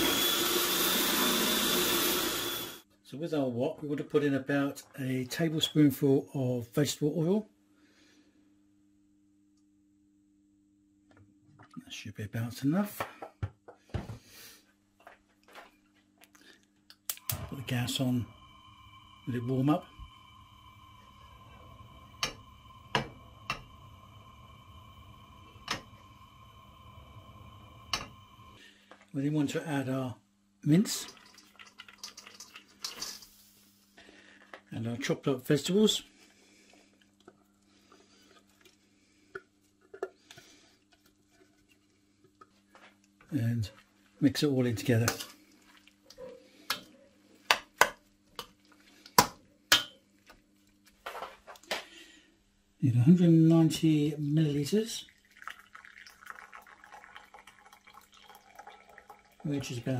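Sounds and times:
faint steady hum: 14.7 - 59.9.

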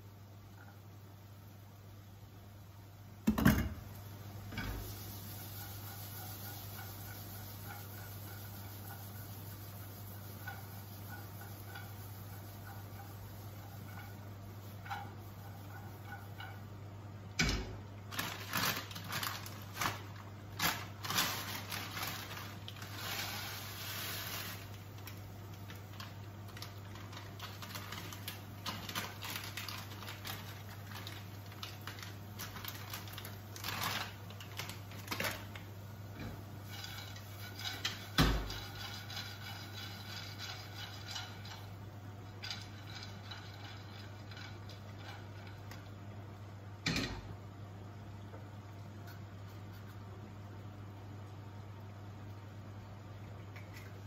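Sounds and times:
frying pan scraping on hob grate: 4.5 - 16.7, 21.0 - 24.8, 36.2 - 41.9.

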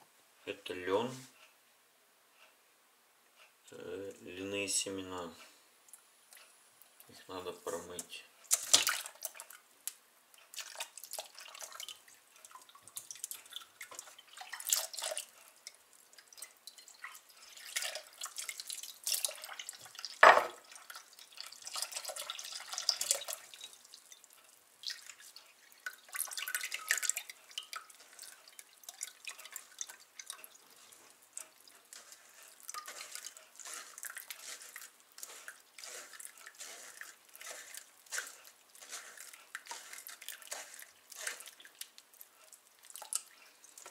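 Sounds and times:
tap water splashing and dripping: 8.4 - 43.9
sharp knock: 20.2 - 20.6.

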